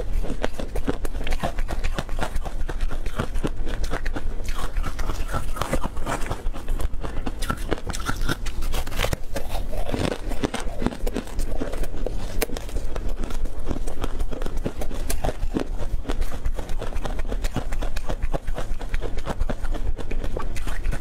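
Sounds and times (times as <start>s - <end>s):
crunching and chewing crispy snack: 0.0s - 21.0s.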